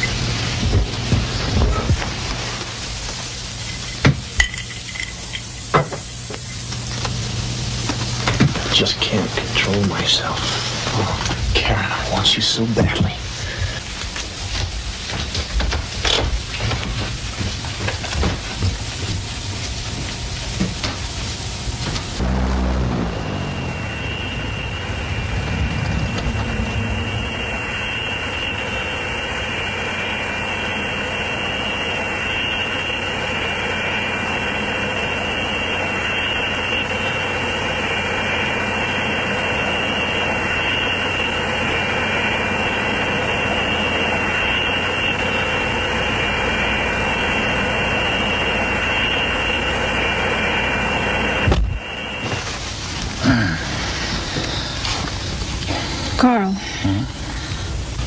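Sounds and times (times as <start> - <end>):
propeller plane engines droning: 0.0 - 58.0
engine cutoff thump: 21.8 - 28.8.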